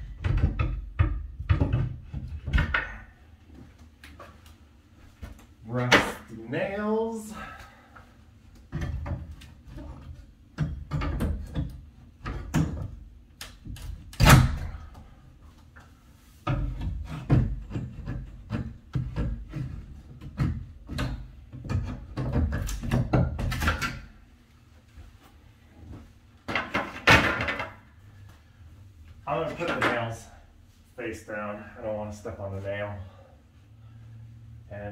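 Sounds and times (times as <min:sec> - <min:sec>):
wooden trim knocked off frame: 0:14.2 - 0:14.8, 0:26.5 - 0:27.8.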